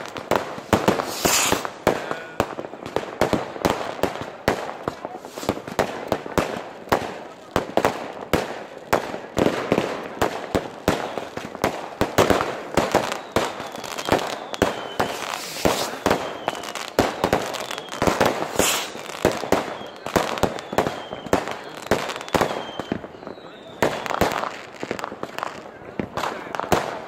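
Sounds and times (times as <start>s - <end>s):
fireworks falling whistles: 0.0s - 2.6s, 5.2s - 6.3s, 9.8s - 25.5s
fireworks bangs and crackles: 0.0s - 27.0s.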